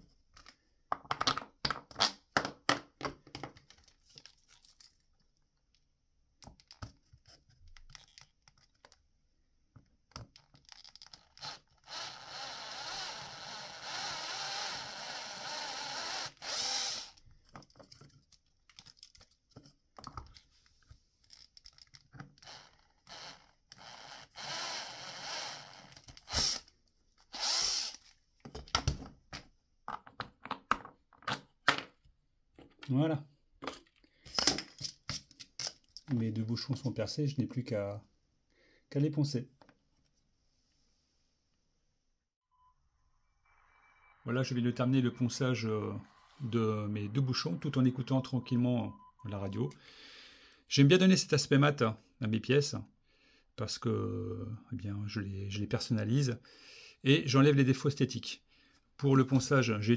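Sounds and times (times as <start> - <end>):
plastic parts clicking and knocking: 0.3 - 4.4, 6.4 - 9.1, 9.7 - 11.1, 17.2 - 20.5, 21.2 - 22.4, 28.4 - 32.9
cordless drill boring through plastic: 11.0 - 17.2, 22.4 - 26.7, 27.3 - 28.1.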